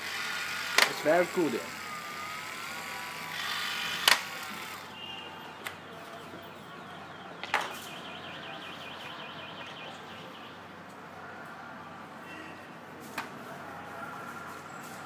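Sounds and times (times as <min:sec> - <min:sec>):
sharp plastic click: 0:04.0 - 0:04.3.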